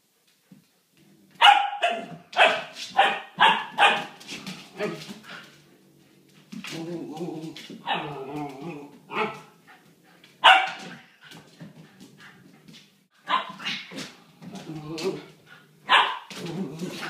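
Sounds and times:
puppy barking sharply: 1.4 - 4.2, 10.4 - 10.9, 13.2 - 13.8, 15.9 - 16.3
puppy play-growling: 4.1 - 12.8, 13.4 - 17.0.

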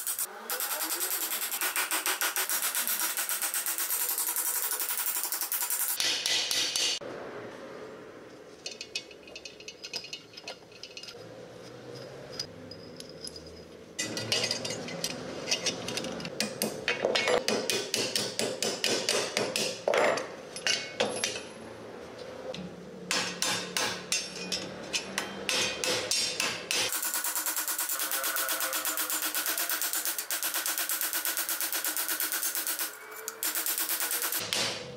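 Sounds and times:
hammer striking steel: 0.0 - 7.0, 16.4 - 21.5, 23.1 - 34.9.

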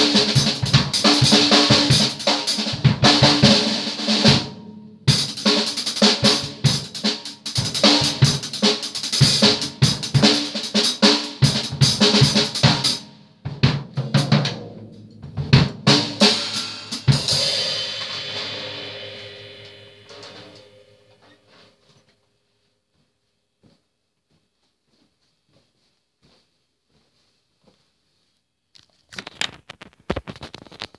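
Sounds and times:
acoustic drum kit fills: 0.0 - 22.0
cymbal metallic ring: 17.4 - 21.4.

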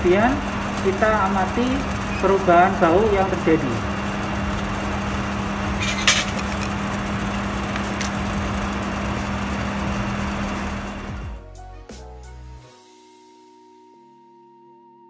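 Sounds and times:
lab equipment hum and hiss: 0.0 - 10.9.

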